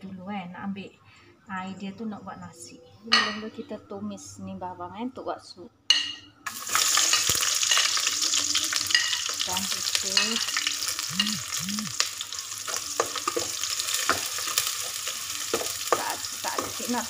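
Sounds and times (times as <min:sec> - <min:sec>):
onions sizzling in oil: 0:06.4 - 0:17.0.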